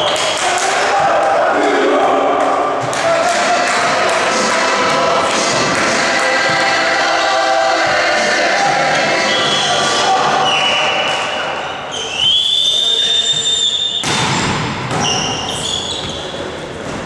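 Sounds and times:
voices: 0.0 - 13.7
volleyball hits and thuds: 14.0 - 15.4.

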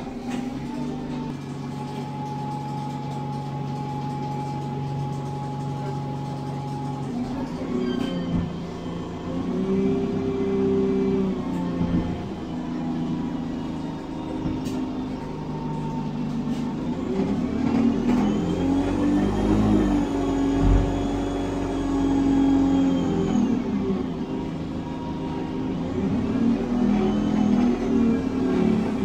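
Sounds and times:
bus diesel engine under load: 0.0 - 29.0.

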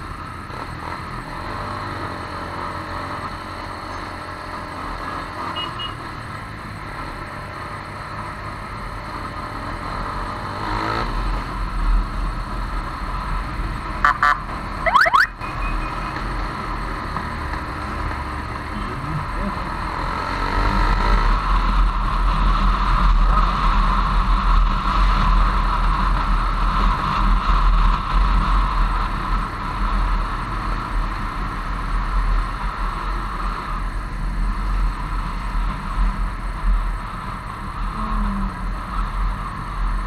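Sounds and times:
wind and road noise: 0.0 - 40.0
high rising tones: 14.8 - 15.4.

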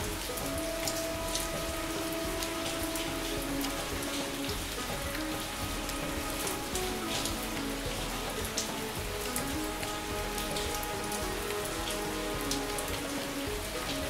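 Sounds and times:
rain falling into a puddle: 0.0 - 14.0
soft calm music: 0.0 - 14.0.

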